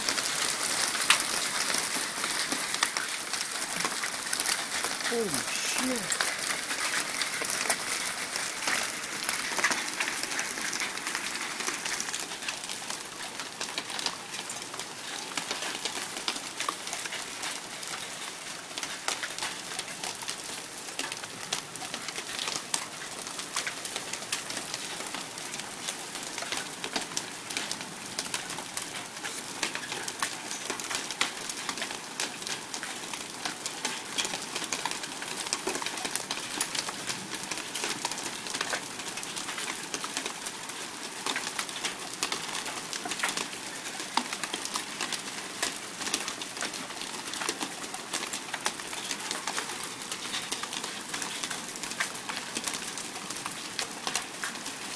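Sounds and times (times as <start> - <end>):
hailstones ticking on wood: 0.0 - 54.9
heavy rain hissing: 4.7 - 6.5.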